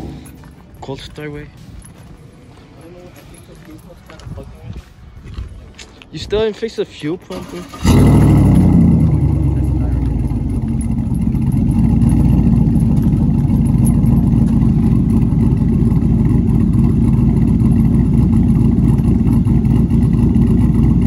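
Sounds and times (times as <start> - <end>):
pickup truck engine idling: 7.8 - 21.0.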